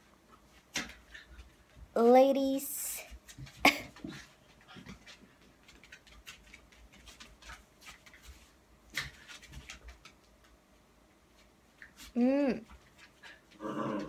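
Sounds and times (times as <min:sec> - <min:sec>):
paws clicking on wooden floor: 0:03.1 - 0:10.6.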